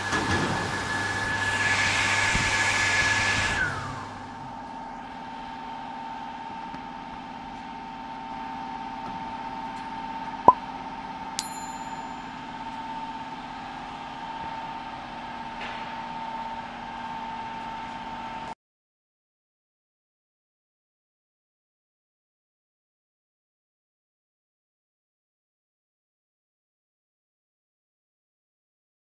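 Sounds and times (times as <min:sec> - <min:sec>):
vacuum system whining: 0:00.0 - 0:17.9
steady machine hum: 0:03.5 - 0:18.5
bell ding: 0:11.4 - 0:12.6.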